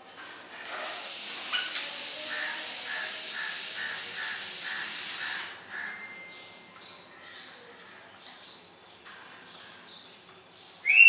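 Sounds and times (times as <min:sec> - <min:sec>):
pet bird harsh hissing call: 0:00.6 - 0:06.0.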